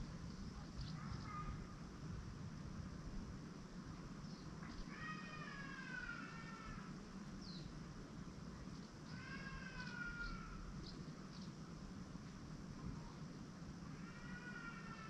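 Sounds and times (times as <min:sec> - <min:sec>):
low steady background hum: 0:00.0 - 0:15.0
long falling animal calls: 0:04.9 - 0:07.0, 0:09.1 - 0:10.8, 0:13.9 - 0:15.0.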